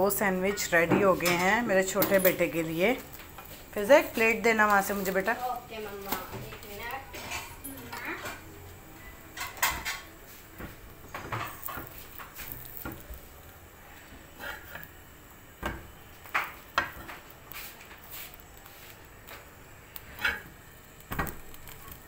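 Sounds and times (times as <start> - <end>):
spatula scraping on griddle: 3.4 - 8.4, 9.3 - 13.1, 14.0 - 14.9, 16.2 - 20.6.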